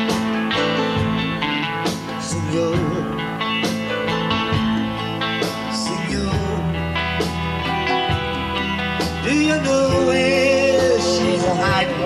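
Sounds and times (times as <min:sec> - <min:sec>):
electric guitar: 0:00.0 - 0:12.0
live band playing: 0:00.0 - 0:12.0
wavering held melody line: 0:07.6 - 0:12.0.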